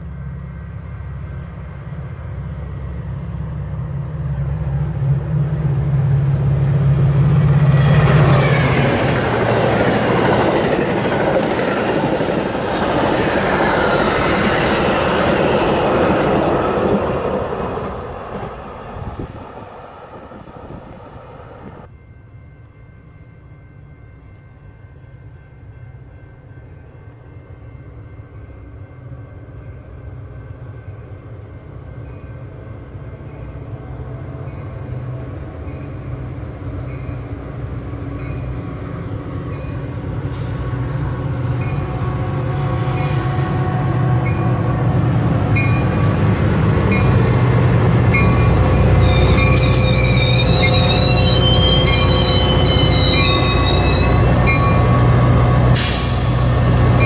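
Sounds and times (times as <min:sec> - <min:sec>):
diesel locomotive passing: 0:00.0 - 0:57.0
wheel squeal: 0:49.0 - 0:54.9.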